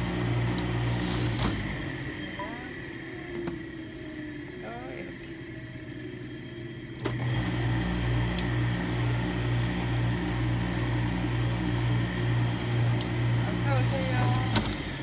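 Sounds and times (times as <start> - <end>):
steam hiss: 0.9 - 1.7, 13.7 - 15.0.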